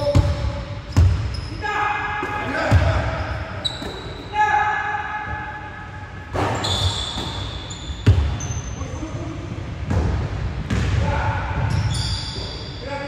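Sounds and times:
sneaker squeaks: 0:00.0 - 0:01.6, 0:02.6 - 0:04.4, 0:06.3 - 0:09.1, 0:11.6 - 0:12.9
basketball bouncing on wood floor: 0:08.0 - 0:08.4.

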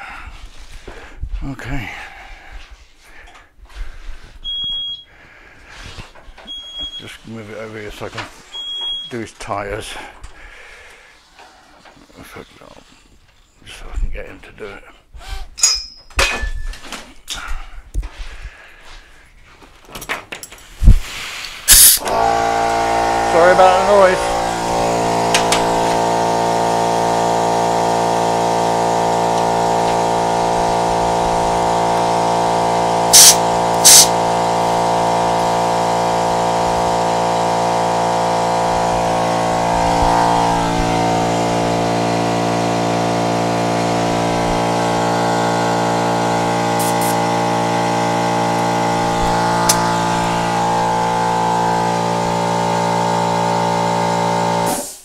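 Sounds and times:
air hissing: 0:20.8 - 0:45.3, 0:46.0 - 0:52.6, 0:54.6 - 0:55.0
air compressor humming: 0:20.8 - 0:55.0.

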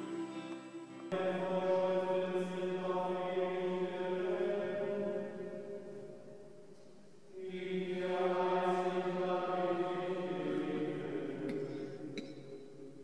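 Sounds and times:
monks chanting in unison: 0:01.1 - 0:06.2, 0:07.4 - 0:12.5.

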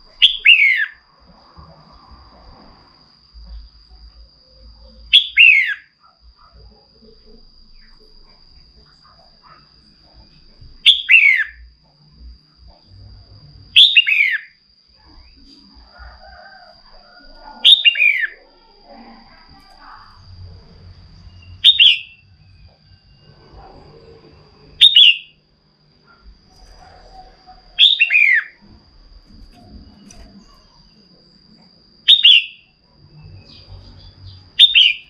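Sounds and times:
bird calling: 0:00.2 - 0:01.0, 0:05.1 - 0:05.9, 0:10.8 - 0:11.6, 0:13.8 - 0:14.5, 0:17.6 - 0:18.6, 0:21.3 - 0:22.2, 0:24.8 - 0:25.4, 0:27.1 - 0:28.7, 0:32.1 - 0:32.7, 0:33.4 - 0:35.0.

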